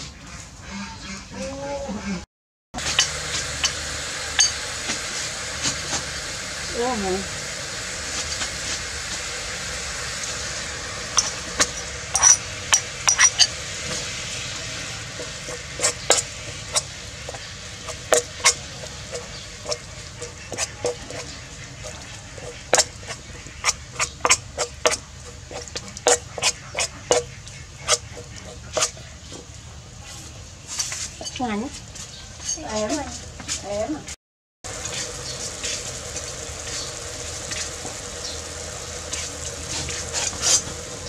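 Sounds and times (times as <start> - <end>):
paste sizzling in hot oil: 2.8 - 32.0, 34.7 - 41.0
metal spoon scraping a pot: 11.1 - 13.5, 15.2 - 29.0.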